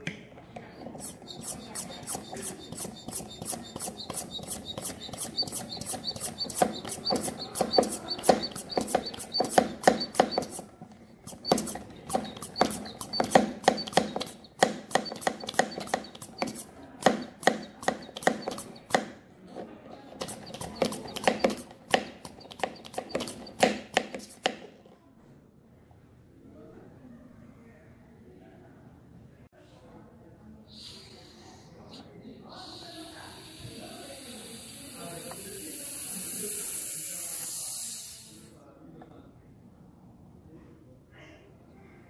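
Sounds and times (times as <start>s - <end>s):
vacuum pump clicking: 0.0s - 19.1s.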